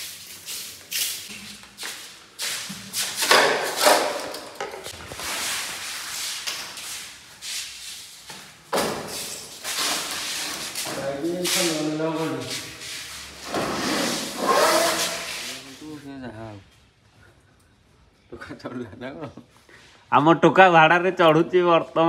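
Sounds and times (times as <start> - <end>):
pipe fittings and boxes clattering: 0.0 - 5.8, 8.2 - 11.7
man talking: 10.9 - 12.7, 15.5 - 16.6.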